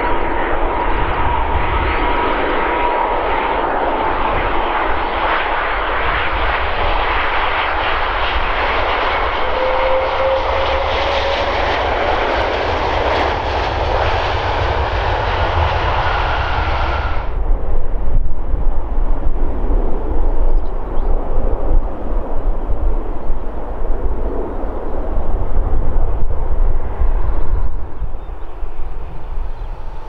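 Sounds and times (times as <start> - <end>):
jet engine roar: 0.0 - 30.0
jet engines spooling up: 0.1 - 17.5.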